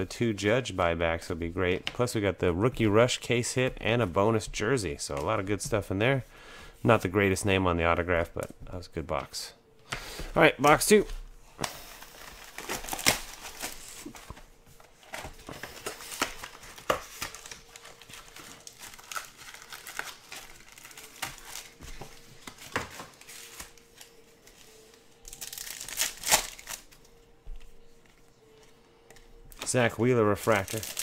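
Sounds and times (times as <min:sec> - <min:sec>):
plastic wrapping crinkling and tearing: 0:11.6 - 0:27.0, 0:29.6 - 0:31.0
card pack wrapper ripping: 0:11.8 - 0:14.3, 0:15.0 - 0:21.8, 0:25.3 - 0:26.9, 0:30.4 - 0:31.0.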